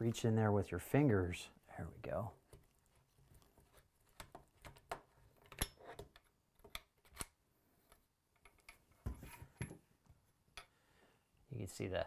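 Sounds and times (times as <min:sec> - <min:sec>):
knocks and handling noise: 0:02.4 - 0:10.8.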